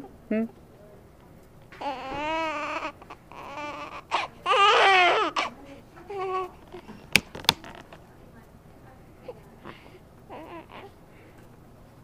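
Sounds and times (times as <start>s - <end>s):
baby crying: 1.8s - 6.6s, 10.3s - 11.0s.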